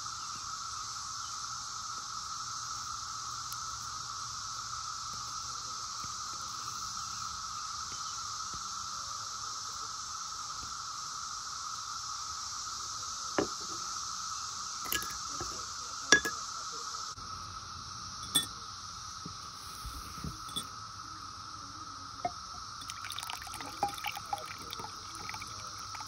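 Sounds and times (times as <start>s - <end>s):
cicadas buzzing: 0.0s - 26.0s
glass clinks: 14.8s - 16.4s, 18.2s - 18.5s, 20.4s - 20.7s, 22.2s - 25.5s.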